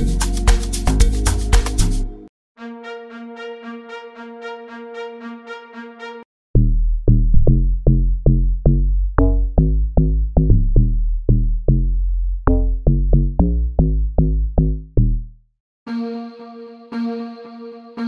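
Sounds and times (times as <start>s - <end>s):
synth log drum bassline: 0.0s - 2.0s.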